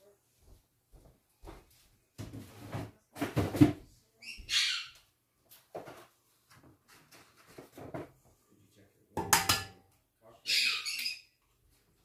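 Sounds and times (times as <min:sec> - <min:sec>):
parrot squawking: 0:04.2 - 0:05.0, 0:10.4 - 0:11.3.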